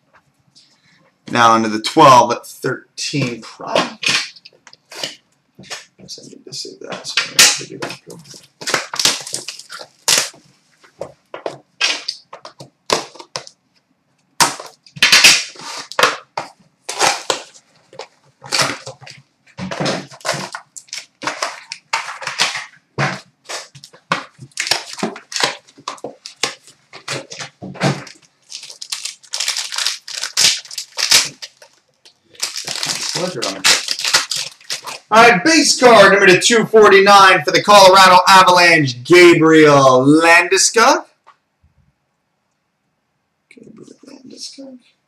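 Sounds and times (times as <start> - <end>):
plastic and foil packaging crinkling: 7.2 - 13.6, 14.4 - 35.1.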